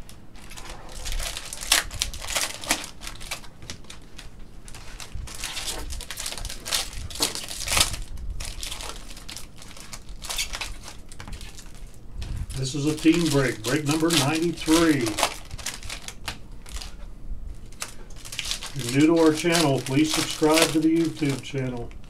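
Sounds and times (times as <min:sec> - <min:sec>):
card pack wrappers crinkling: 0:00.0 - 0:22.0.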